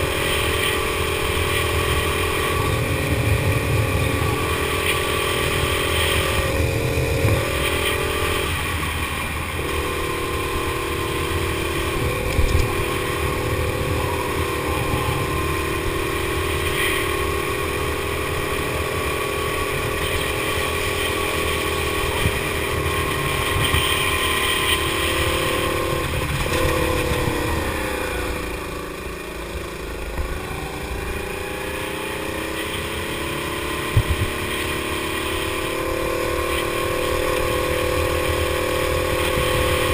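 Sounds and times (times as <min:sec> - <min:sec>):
go-kart engine running: 0:00.0 - 0:39.9.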